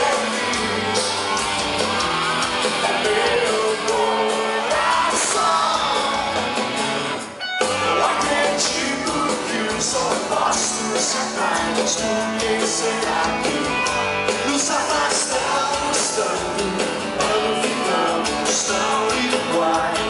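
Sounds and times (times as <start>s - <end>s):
singing voices: 0.0s - 1.5s, 2.7s - 6.6s, 7.7s - 20.0s
drums: 0.0s - 20.0s
electric guitar: 0.0s - 20.0s
rock band playing live: 0.0s - 20.0s.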